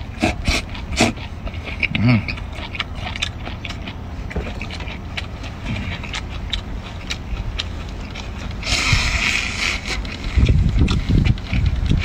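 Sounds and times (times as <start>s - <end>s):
man slurping: 0.1s - 2.8s, 8.5s - 11.2s
chewing clicks: 0.1s - 12.0s
wind rumble on microphone: 8.5s - 12.0s.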